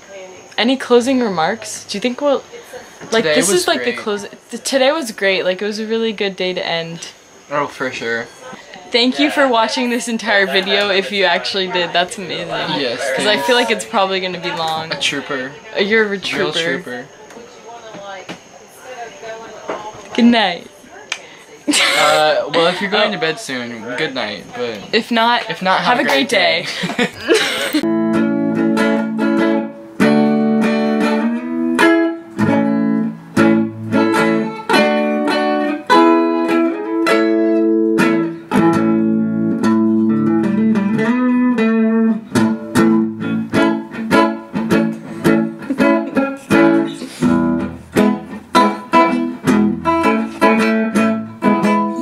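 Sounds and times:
plucked string instrument music: 0:10.2 - 0:15.3, 0:27.8 - 0:52.0.

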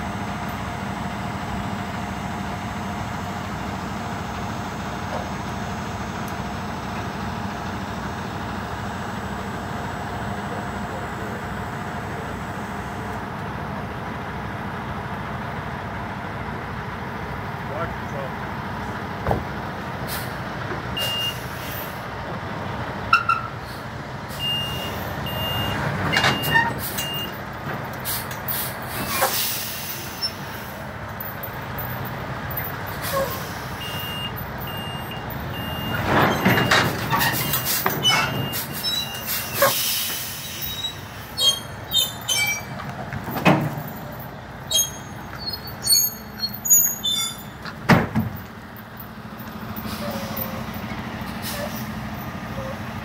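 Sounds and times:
truck engine running: 0:00.0 - 0:53.0
reversing alarm beeping: 0:21.0 - 0:21.5, 0:24.4 - 0:27.4, 0:33.8 - 0:39.6
sharp knocks and clanks: 0:42.7 - 0:44.2, 0:47.6 - 0:48.5.

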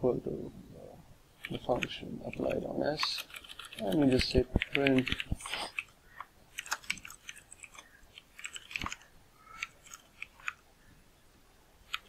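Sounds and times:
keyboard typing: 0:01.4 - 0:10.6.

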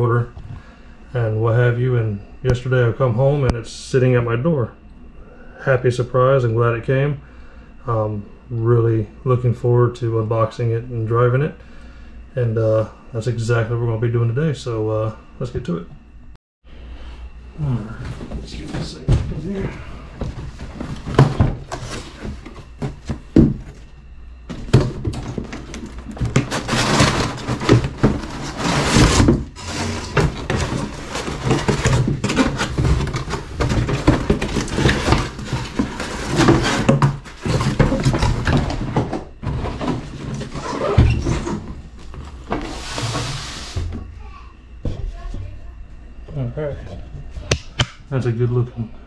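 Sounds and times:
cardboard box rustling: 0:24.5 - 0:40.6.

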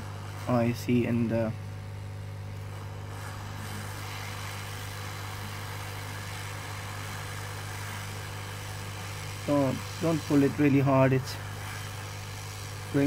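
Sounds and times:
hot air hissing: 0:00.0 - 0:13.0.

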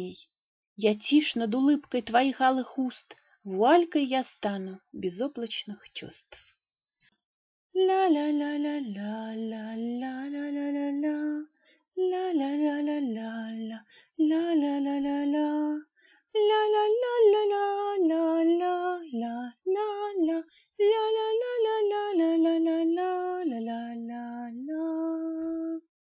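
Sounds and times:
woman singing wordless melody: 0:00.0 - 0:06.4, 0:07.7 - 0:25.9.

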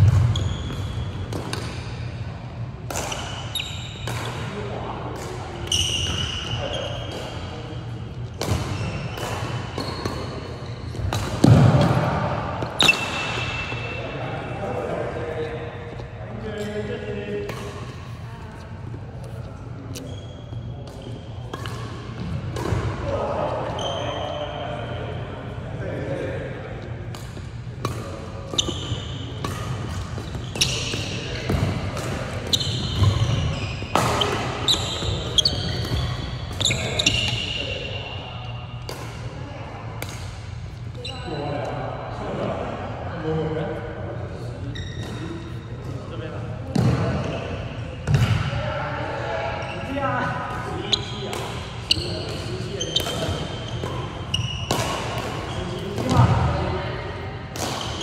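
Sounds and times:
sneaker squeaking on floor: 0:00.0 - 0:02.2, 0:03.0 - 0:04.5, 0:05.6 - 0:07.5, 0:08.2 - 0:11.6, 0:12.5 - 0:14.0, 0:18.8 - 0:22.4, 0:23.6 - 0:25.0, 0:28.4 - 0:38.8, 0:40.9 - 0:41.5, 0:44.6 - 0:45.6, 0:49.6 - 0:56.3
racket striking shuttlecock: 0:29.4 - 0:37.4.

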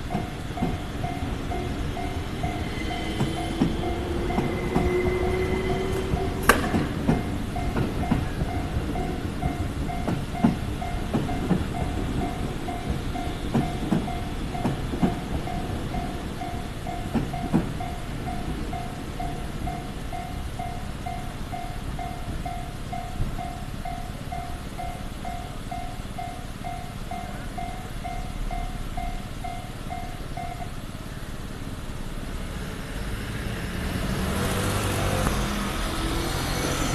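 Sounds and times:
train wheels clacking over rail joints: 0:00.0 - 0:23.4
level crossing warning bell ringing: 0:00.0 - 0:31.1
cars driving past: 0:00.0 - 0:36.9.

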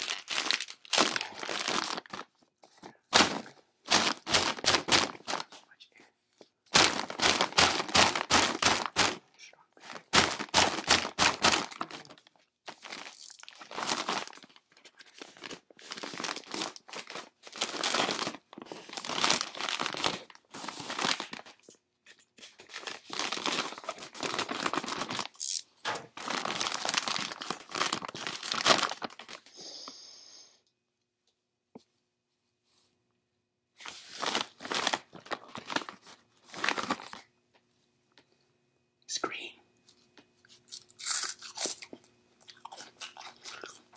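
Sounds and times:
plastic chip bag crinkling: 0:00.0 - 0:05.5, 0:06.7 - 0:29.5, 0:33.9 - 0:37.3, 0:40.5 - 0:43.9.

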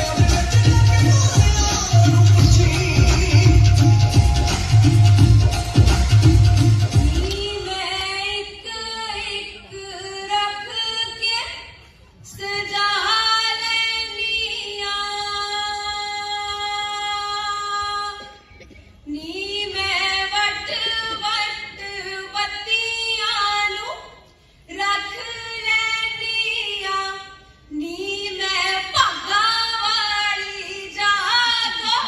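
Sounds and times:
woman singing unaccompanied: 0:07.0 - 0:18.2, 0:19.1 - 0:32.0.

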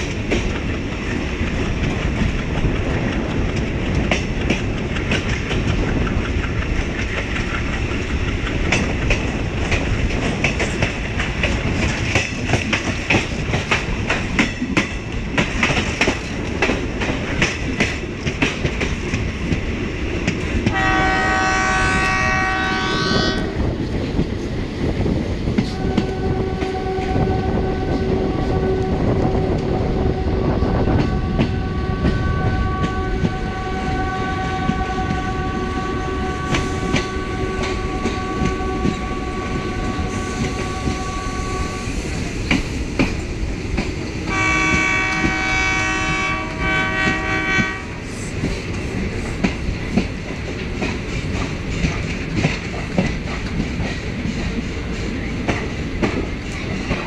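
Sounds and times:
train wheels clattering over rail joints: 0:00.0 - 0:27.1, 0:30.8 - 0:57.0
locomotive horn blasts: 0:20.7 - 0:23.6, 0:25.7 - 0:41.9, 0:44.3 - 0:47.9.

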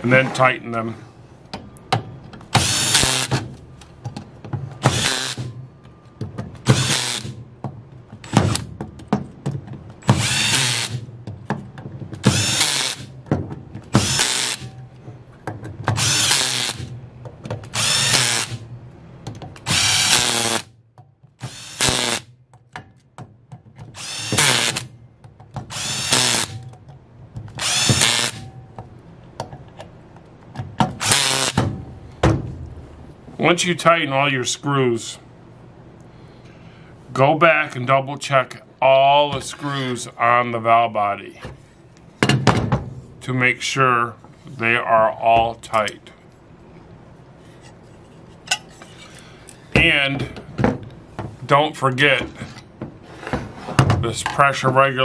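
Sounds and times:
cordless drill driving screws: 0:02.6 - 0:03.4, 0:04.8 - 0:05.5, 0:06.7 - 0:07.4, 0:10.1 - 0:11.0, 0:12.2 - 0:13.1, 0:13.9 - 0:14.7, 0:16.0 - 0:16.9, 0:17.7 - 0:18.6, 0:19.6 - 0:20.7, 0:21.4 - 0:22.2, 0:24.0 - 0:24.9, 0:25.7 - 0:26.6, 0:27.6 - 0:28.5, 0:31.0 - 0:31.6.

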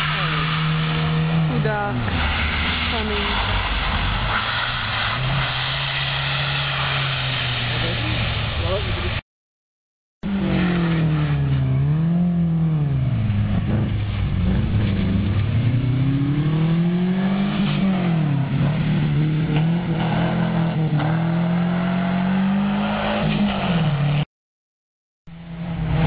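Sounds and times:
rally car engine revving: 0:00.0 - 0:09.2, 0:10.2 - 0:24.2, 0:25.3 - 0:26.0.

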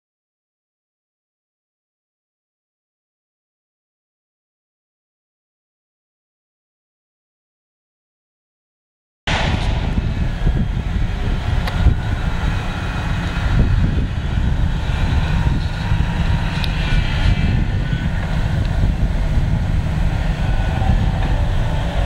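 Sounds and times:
heavy machine rumbling: 0:09.3 - 0:22.0.

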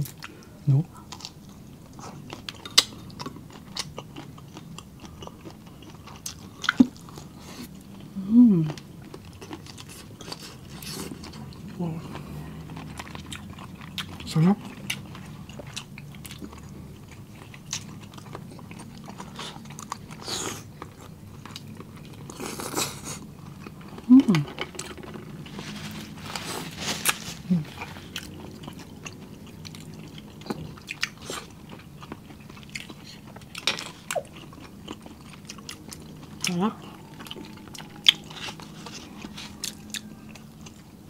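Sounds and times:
wet chewing and smacking: 0:00.0 - 0:41.0
person humming in enjoyment: 0:08.2 - 0:08.8.

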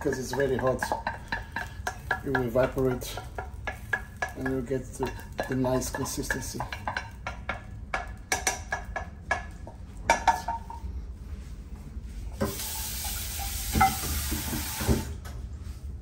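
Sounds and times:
tap running into sink: 0:12.4 - 0:15.2.

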